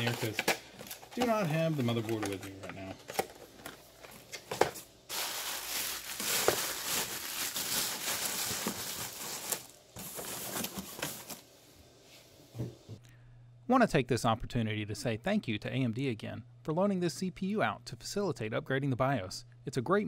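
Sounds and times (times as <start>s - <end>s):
bubble wrap crinkling: 5.1s - 11.5s.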